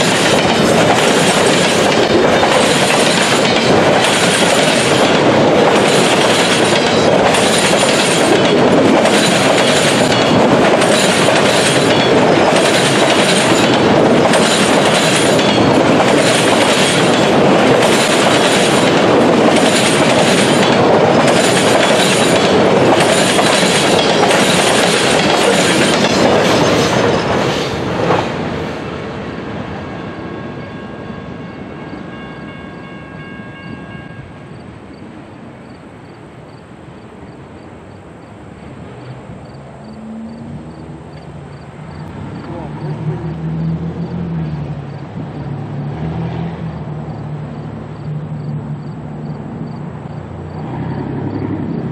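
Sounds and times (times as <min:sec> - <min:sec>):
train wheels clattering: 0:00.0 - 0:28.5
freight train rumbling past: 0:00.0 - 0:51.9.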